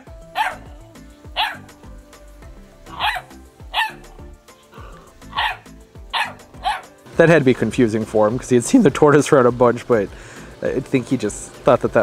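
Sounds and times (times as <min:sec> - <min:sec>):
background music: 0:00.0 - 0:12.0
puppy barking: 0:00.3 - 0:01.7, 0:02.9 - 0:04.2, 0:04.8 - 0:07.0.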